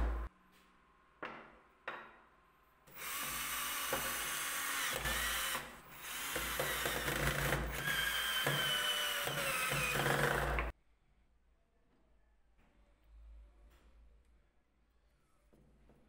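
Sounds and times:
cordless drill driving screws: 2.9 - 10.7.

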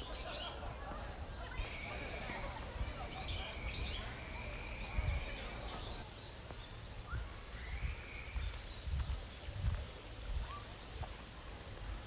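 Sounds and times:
outdoor ambience: 0.0 - 12.0
small birds chirping: 0.0 - 12.0
footsteps on dirt path: 7.9 - 12.0.

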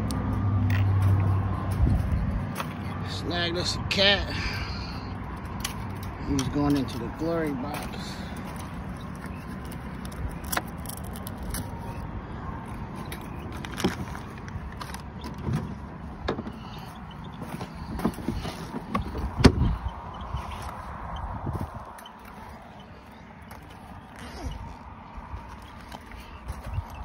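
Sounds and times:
handling clicks and knocks: 5.3 - 12.0, 12.6 - 20.8.

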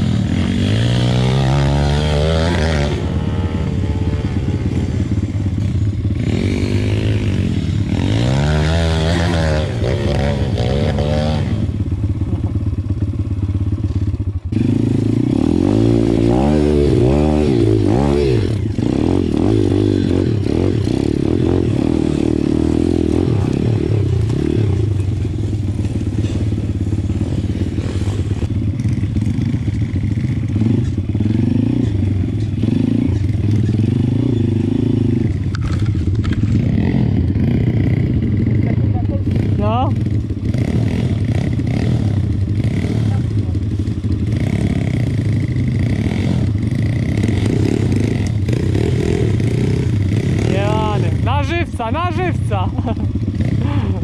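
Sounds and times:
pit bike engine revving: 0.0 - 54.0.

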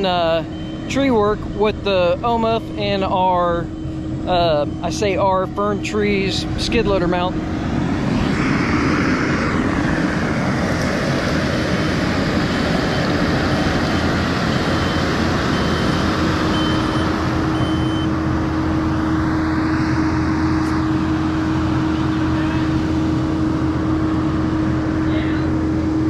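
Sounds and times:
reverse alarm beeping: 0.0 - 7.6, 12.5 - 19.0
diesel loader engine running: 0.0 - 26.0.

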